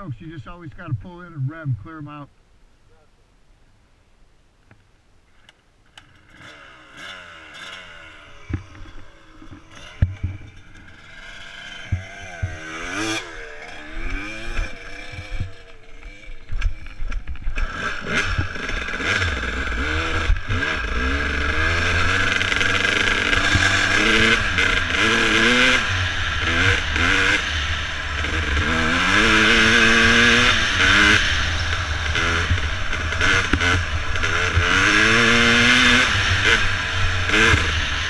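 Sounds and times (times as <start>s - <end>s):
dirt bike engine revving: 6.0s - 38.0s.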